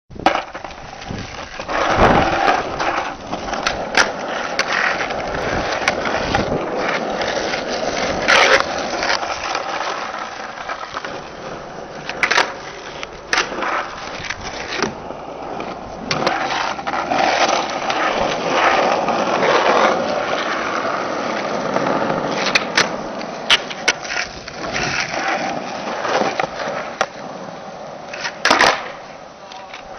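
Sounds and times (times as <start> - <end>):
skateboard deck clacking: 0.1 - 29.9
skateboard wheels rolling on asphalt: 0.1 - 29.9.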